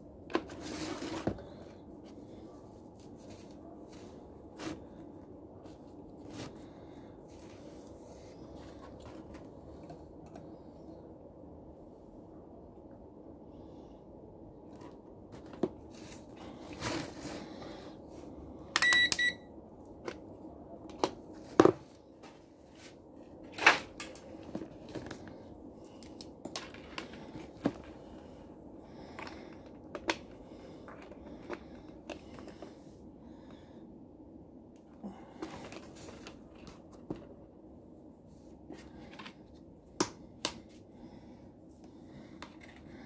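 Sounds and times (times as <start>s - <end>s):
electronic beep: 18.8s - 19.5s.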